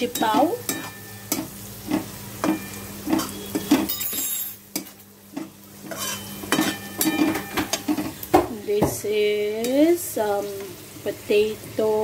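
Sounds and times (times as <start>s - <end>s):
onion and garlic frying in oil: 0.0s - 12.0s
metal spatula scraping a wok: 0.1s - 4.0s, 5.8s - 8.0s.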